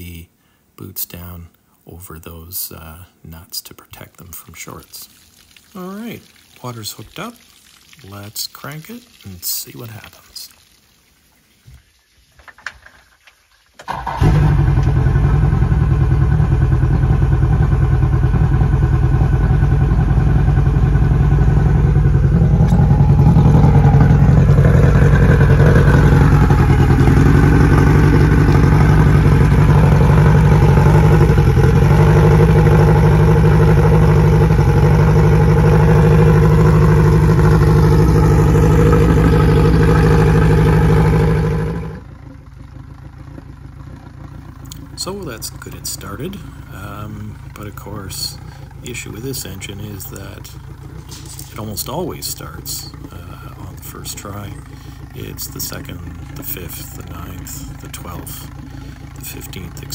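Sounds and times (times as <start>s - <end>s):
outboard motor running: 13.8s - 59.9s.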